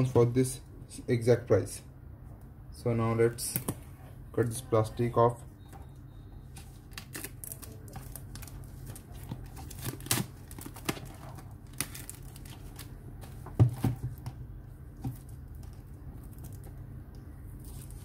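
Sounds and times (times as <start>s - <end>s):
plastic wrap crinkling and tearing: 6.6s - 13.3s, 17.5s - 18.0s
knife cutting plastic wrap: 6.9s - 12.8s.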